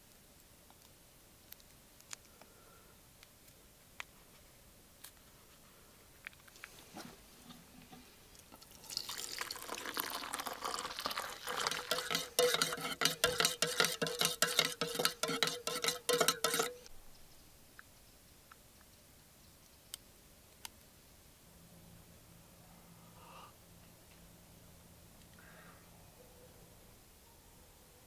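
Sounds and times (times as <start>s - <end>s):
water pouring into metal mug: 8.6s - 16.7s
spoon clinking against mug: 8.9s - 16.8s.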